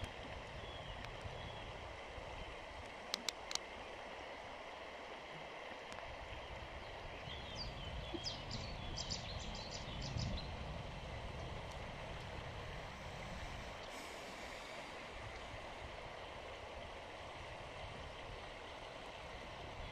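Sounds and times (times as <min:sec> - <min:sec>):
river water over stones: 0:00.0 - 0:19.9
sharp clicks: 0:03.1 - 0:03.6.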